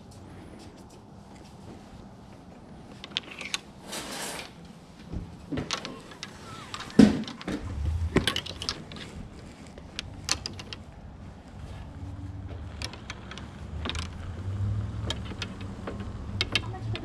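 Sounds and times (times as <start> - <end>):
golf clubs clinking in a bag: 5.6 - 11.0
low rumble: 7.6 - 10.2.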